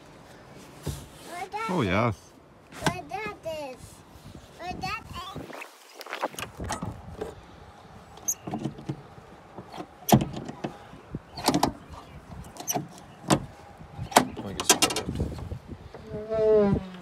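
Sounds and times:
tailgate latch clicks and clunks: 0:09.6 - 0:10.8, 0:11.4 - 0:11.9, 0:12.5 - 0:15.5.

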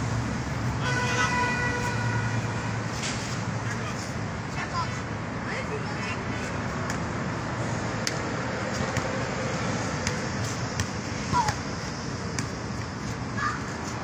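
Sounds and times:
steady background noise: 0:00.0 - 0:14.0
basketball bouncing on hard court: 0:10.8 - 0:11.6.

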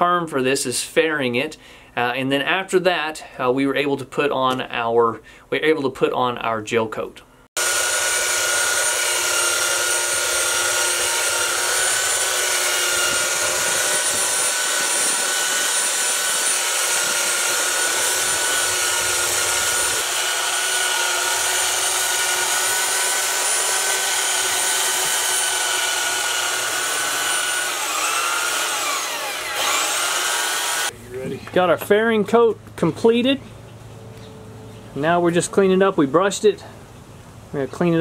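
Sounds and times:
electric belt sander whining: 0:07.6 - 0:31.0.

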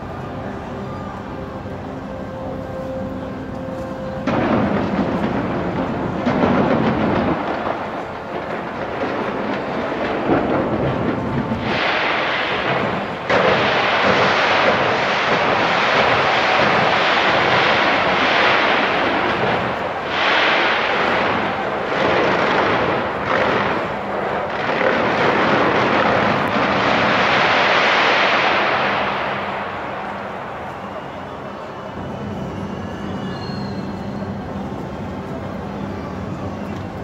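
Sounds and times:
fireworks bursting and crackling: 0:04.1 - 0:37.0.

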